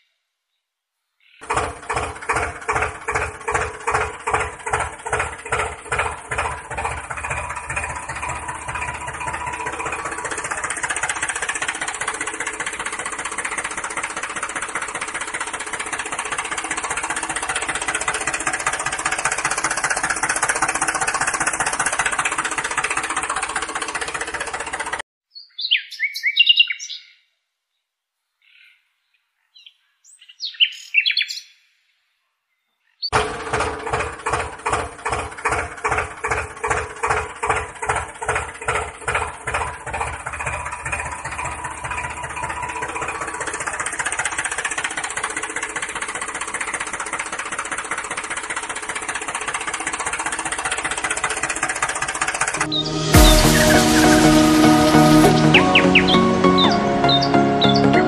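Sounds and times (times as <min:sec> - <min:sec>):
tractor-like engine puttering: 0:01.4 - 0:25.0, 0:33.1 - 0:58.0.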